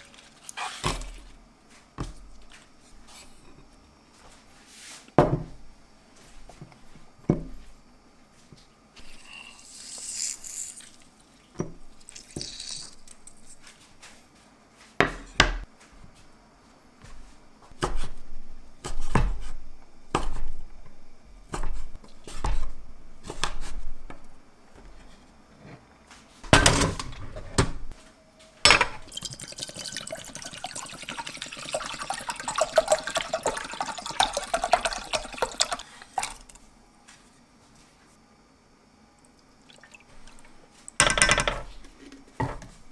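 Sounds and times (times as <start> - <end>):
water pouring into saucepan: 29.0 - 36.6, 39.6 - 40.6.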